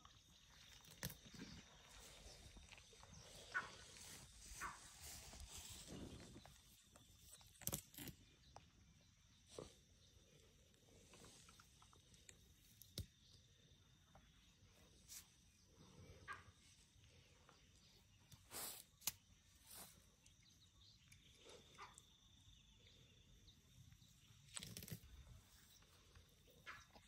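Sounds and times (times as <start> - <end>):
rustling in grass: 1.9 - 6.6.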